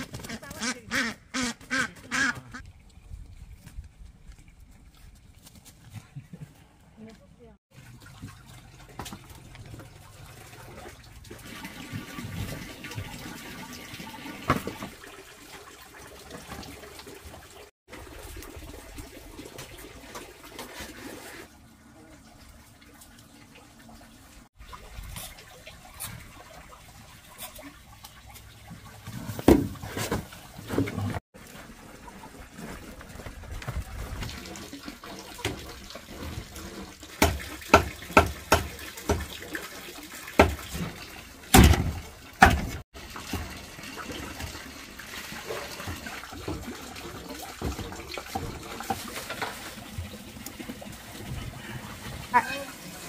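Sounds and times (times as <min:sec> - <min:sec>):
water running and splashing: 0:07.4 - 0:53.0.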